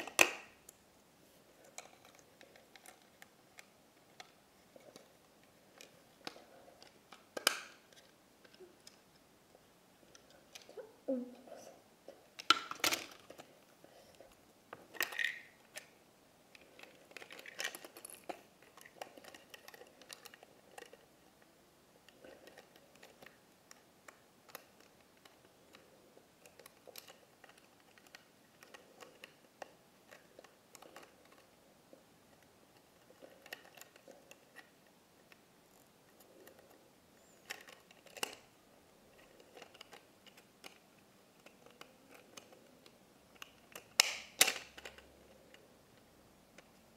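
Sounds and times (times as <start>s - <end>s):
plastic toys clicking and rattling: 0.0s - 0.5s, 1.6s - 9.1s, 12.3s - 13.5s, 14.8s - 15.9s, 16.6s - 21.1s, 22.0s - 31.6s, 32.4s - 35.4s, 37.4s - 38.5s, 39.1s - 45.7s
plastic snap: 0.0s - 0.8s, 5.8s - 9.0s, 43.3s - 45.1s.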